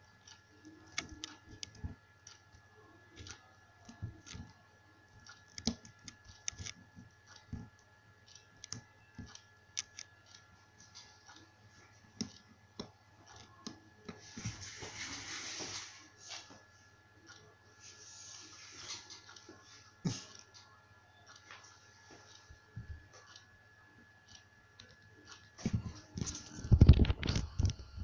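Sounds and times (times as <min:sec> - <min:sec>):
faint high electronic whine: 0:00.0 - 0:28.0
computer mouse clicks: 0:00.3 - 0:02.5, 0:05.2 - 0:10.5.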